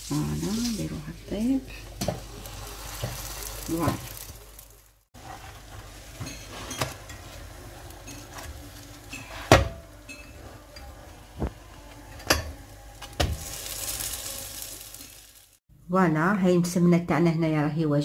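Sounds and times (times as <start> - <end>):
flatbread sizzling on griddle: 2.2 - 10.6, 13.0 - 15.6.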